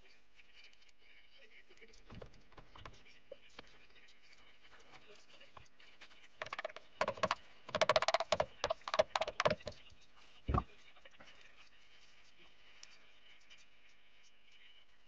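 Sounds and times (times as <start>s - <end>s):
dull wooden knock: 6.4s - 9.8s, 10.5s - 10.7s
small clicks and rattles: 6.4s - 9.9s.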